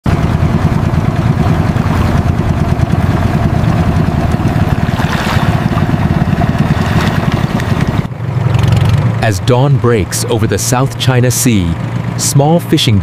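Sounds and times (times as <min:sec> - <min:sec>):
outboard boat engine running: 0:00.1 - 0:13.0.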